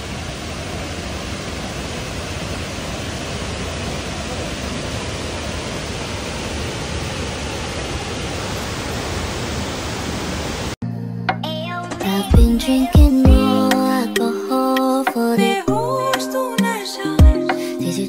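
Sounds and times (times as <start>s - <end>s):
waterfall roaring: 0.0s - 10.8s.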